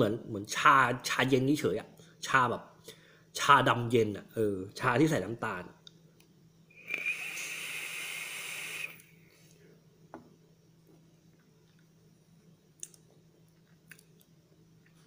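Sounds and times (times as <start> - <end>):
air hiss through e-cigarette: 6.7 - 9.6.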